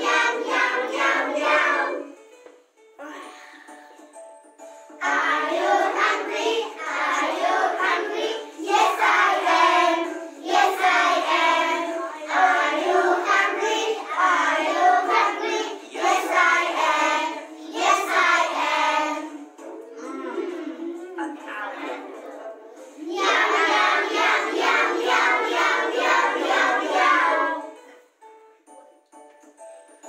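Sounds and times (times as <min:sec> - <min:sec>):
children singing in chorus: 0:00.0 - 0:02.1, 0:05.0 - 0:19.5, 0:23.0 - 0:27.8.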